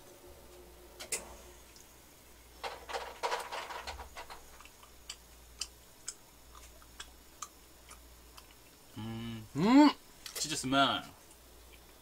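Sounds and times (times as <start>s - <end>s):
chewing crunches: 4.5s - 8.8s.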